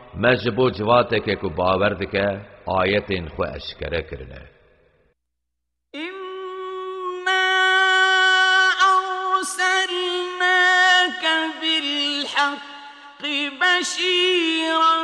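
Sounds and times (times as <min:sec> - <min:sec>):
man chanting melodically: 0:00.0 - 0:04.5.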